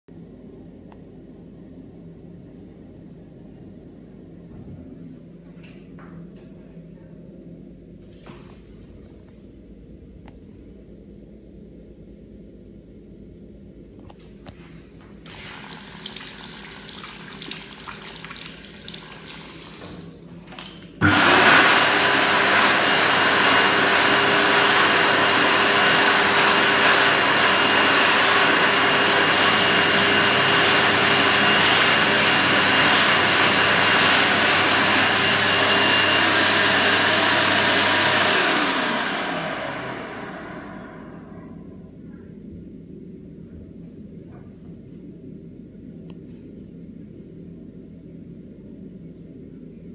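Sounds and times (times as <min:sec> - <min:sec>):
hand dryer running: 0:15.2 - 0:42.4.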